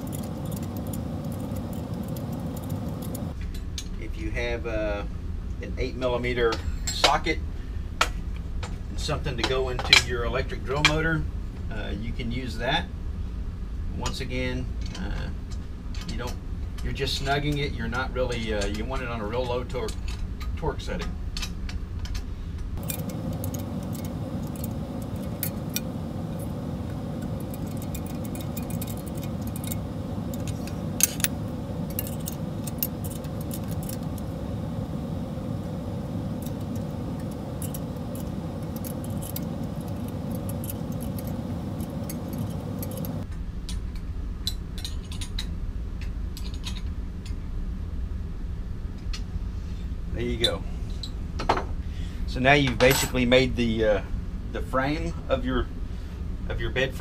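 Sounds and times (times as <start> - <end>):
steady hum: 0.0 - 57.0
metallic clinks of bolts and tool: 22.8 - 26.6, 27.2 - 34.3.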